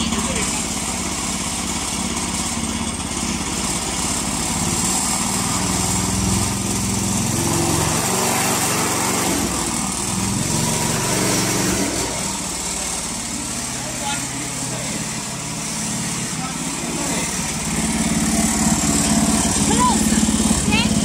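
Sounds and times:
small petrol engine running: 0.0s - 21.0s.

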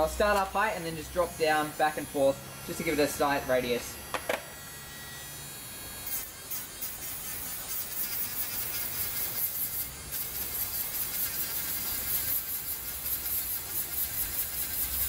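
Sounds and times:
rotary tool motor buzz: 0.0s - 15.0s
sanding hiss on wood: 6.0s - 15.0s.

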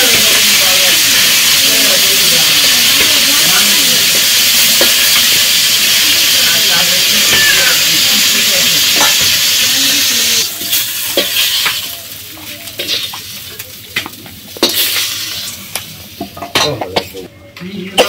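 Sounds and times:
fish sizzling in hot oil: 0.0s - 16.5s
metal spatula scraping a pan: 12.7s - 13.2s.

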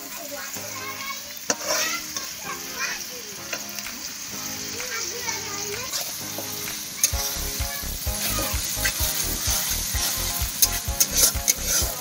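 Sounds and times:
background music: 0.0s - 12.0s
onions sizzling in hot oil: 0.0s - 12.0s
metal spatula scraping pan: 1.5s - 2.5s, 8.1s - 12.0s.

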